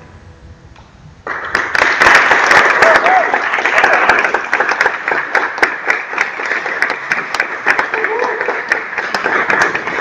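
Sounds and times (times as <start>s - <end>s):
audience applauding: 1.2s - 10.0s.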